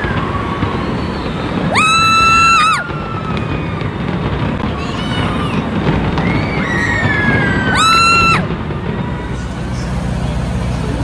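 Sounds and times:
crowd noise: 0.0s - 11.0s
fireworks exploding: 0.0s - 11.0s
high whistling tone: 0.1s - 3.9s.

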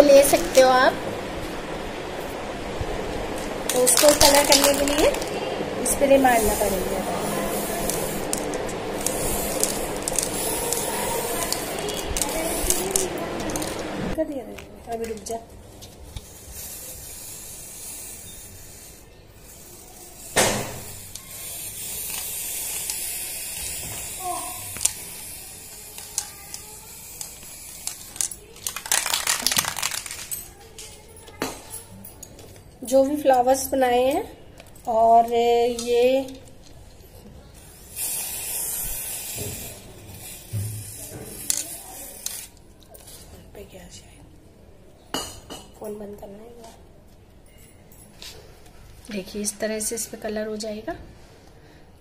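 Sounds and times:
spray-paint can hissing: 3.7s - 14.0s, 16.0s - 30.4s, 37.6s - 42.6s.

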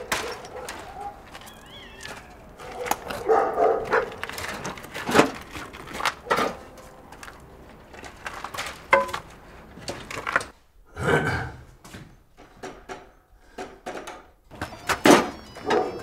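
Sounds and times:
animal calling: 0.0s - 3.7s, 14.5s - 16.0s
wheelbarrow rattling over stones: 0.0s - 10.6s.

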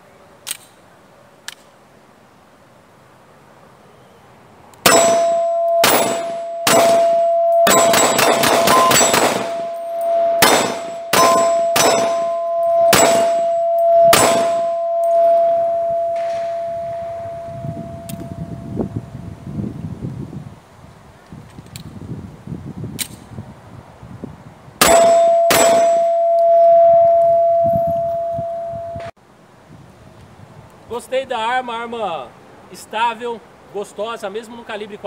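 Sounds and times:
pistol gunshots: 4.8s - 9.6s, 10.4s - 12.3s, 12.9s - 13.5s, 14.1s - 14.6s, 24.8s - 26.0s
steel target ringing: 4.8s - 19.0s, 24.8s - 29.1s.

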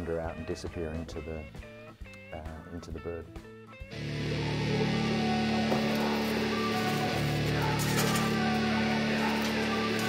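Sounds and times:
rock music with electric guitar: 3.3s - 10.0s.

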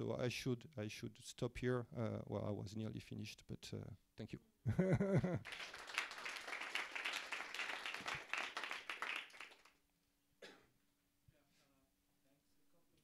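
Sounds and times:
audience applauding: 5.4s - 9.8s.

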